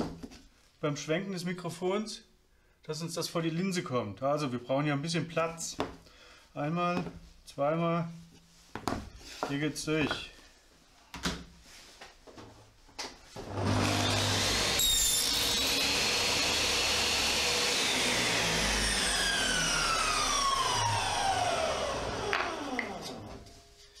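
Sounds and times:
table saw cutting wood: 13.5 - 23.5.

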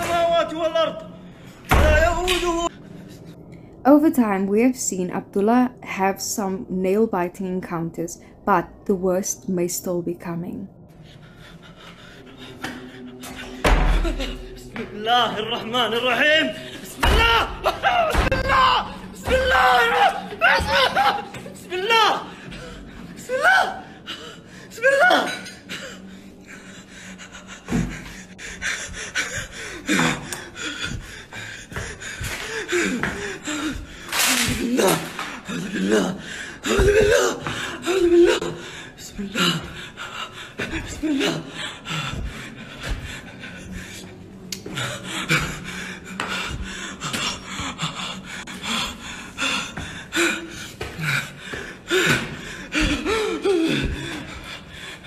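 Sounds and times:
man breathing heavily: 10.9 - 14.8, 25.4 - 34.3, 35.0 - 55.0
man's strained cries: 15.1 - 23.9, 49.4 - 54.4.

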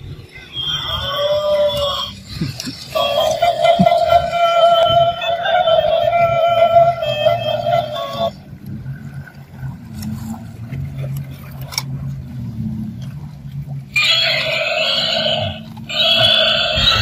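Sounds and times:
electronic toy call: 0.4 - 8.4, 14.0 - 17.0
toy motor whirring: 1.0 - 8.4, 14.0 - 17.0.

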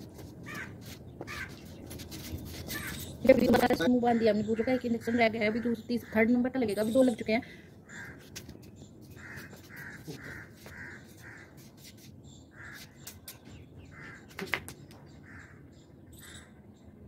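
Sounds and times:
crow cawing: 0.5 - 0.7, 1.3 - 1.5, 7.8 - 8.2, 9.2 - 11.5, 12.5 - 12.8, 13.9 - 14.3, 15.2 - 15.6.

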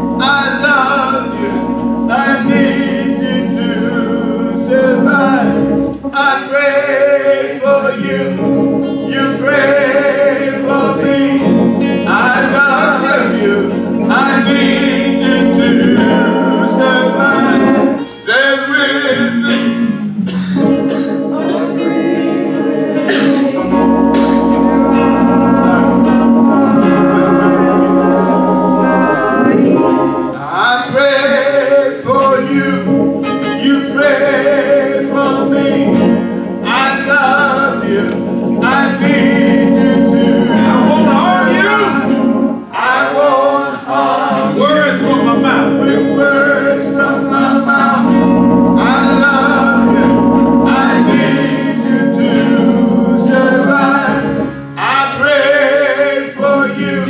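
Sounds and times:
church organ chords: 0.0 - 57.0
man singing gospel song: 0.0 - 57.0.

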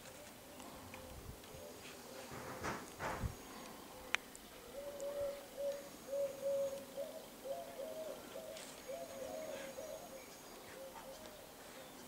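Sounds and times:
pigeon cooing: 3.5 - 12.0.

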